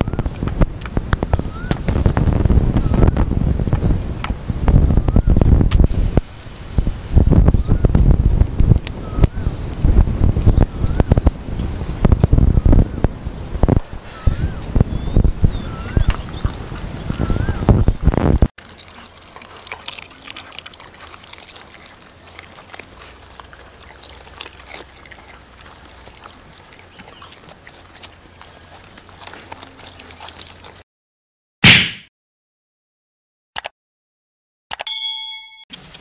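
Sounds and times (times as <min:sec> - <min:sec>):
puppies chewing and lapping: 0:18.6 - 0:30.8
bell-like chime: 0:34.9 - 0:35.7.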